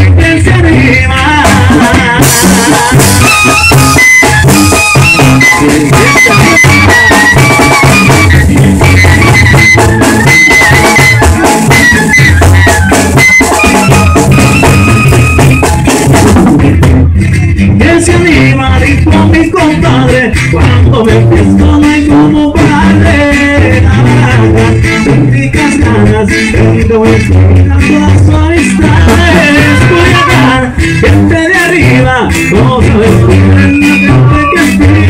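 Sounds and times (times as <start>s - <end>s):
acoustic guitar strumming: 0.0s - 35.0s
sousaphone bass line: 0.0s - 35.0s
dense drumming: 0.2s - 35.0s
brass band music: 1.4s - 17.7s, 28.9s - 31.9s, 32.7s - 35.0s.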